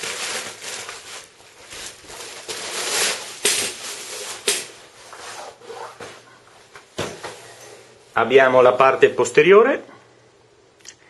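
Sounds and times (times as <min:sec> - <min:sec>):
cellophane crinkles: 0:00.0 - 0:05.0
bag in plastic wrap rustling: 0:00.0 - 0:06.3.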